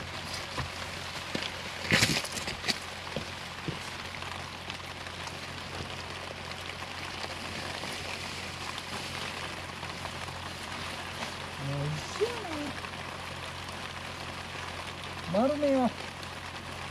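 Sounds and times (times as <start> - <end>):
wet tent rustling: 0.0 - 16.0
heavy rain hissing: 0.0 - 16.9.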